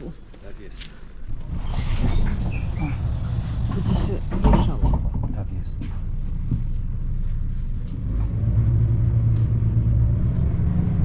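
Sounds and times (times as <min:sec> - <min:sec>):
vehicle engine rumbling: 0:01.0 - 0:11.0.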